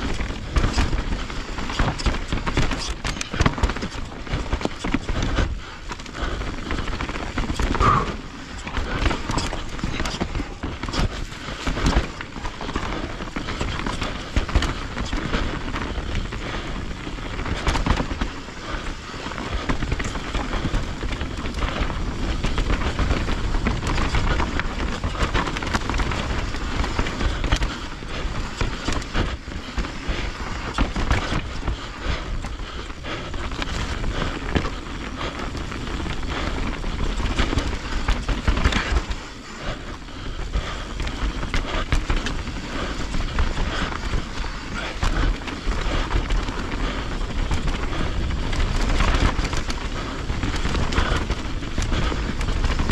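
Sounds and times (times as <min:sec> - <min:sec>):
bike rattling over bumps: 0:00.0 - 0:52.9
tyres on loose ground: 0:00.0 - 0:52.9
wind rumbling on microphone: 0:00.0 - 0:52.9.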